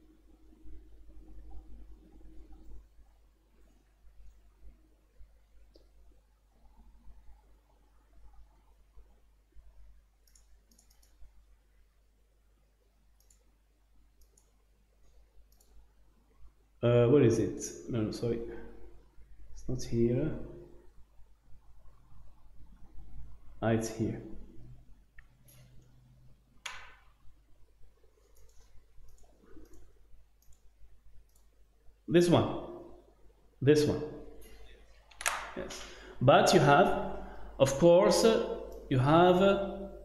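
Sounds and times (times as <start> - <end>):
computer mouse clicks: 10.2 - 11.3, 13.2 - 13.5, 14.2 - 15.8, 28.2 - 31.5.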